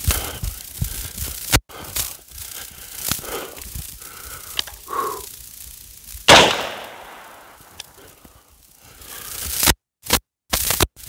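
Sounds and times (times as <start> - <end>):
rifle shot with echo: 6.3 - 7.7.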